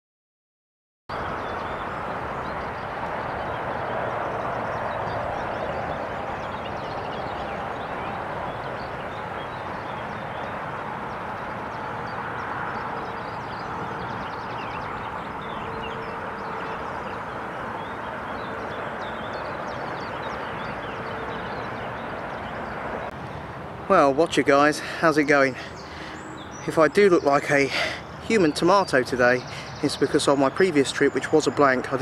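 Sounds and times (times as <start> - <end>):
continuous rushing hiss: 1.1 - 32.0.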